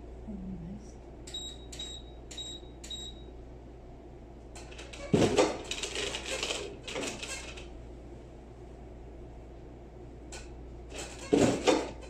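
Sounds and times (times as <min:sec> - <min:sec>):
short electronic beeps: 0:01.3 - 0:03.3
rustling and clatter: 0:04.6 - 0:07.7, 0:10.9 - 0:12.0.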